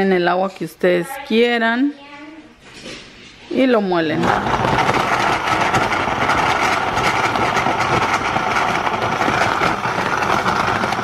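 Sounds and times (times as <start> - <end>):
blender running at high speed: 4.2 - 11.0.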